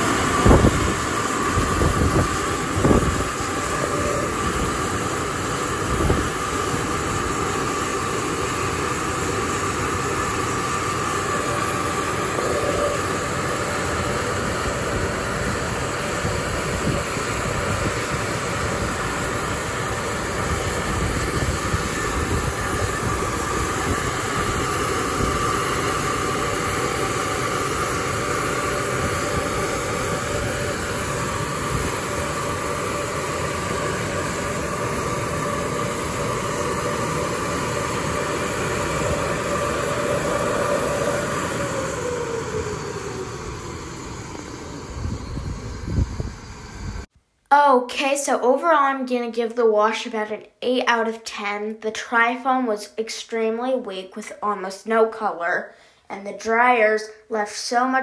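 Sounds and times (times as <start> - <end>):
blower dryers rushing air: 0.0 - 47.7.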